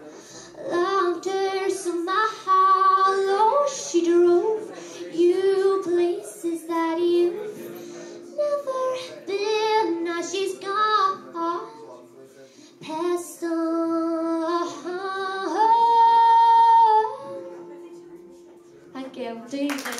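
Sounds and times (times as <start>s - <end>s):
acoustic guitar: 0.0s - 19.7s
woman singing: 0.6s - 11.9s, 12.8s - 17.8s, 19.0s - 19.9s.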